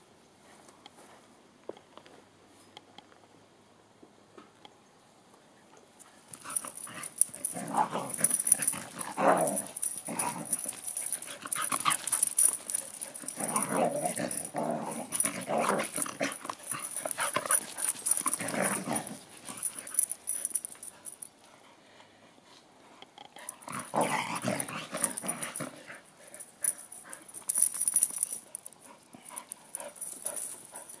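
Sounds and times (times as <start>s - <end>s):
dogs growling in play: 6.4s - 21.2s, 23.4s - 27.4s.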